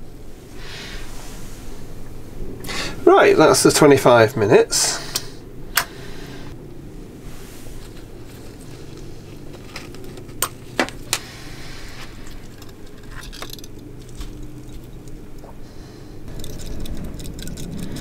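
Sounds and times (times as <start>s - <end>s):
steady low hum: 0.0s - 18.0s
metal fasteners clinking: 11.9s - 15.5s, 16.3s - 18.0s.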